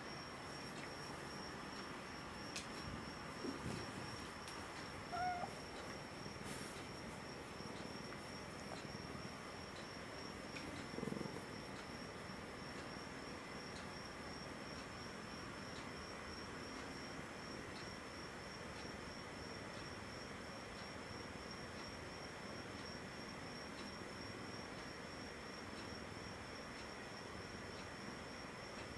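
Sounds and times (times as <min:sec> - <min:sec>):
crickets trilling: 0:00.0 - 0:28.8.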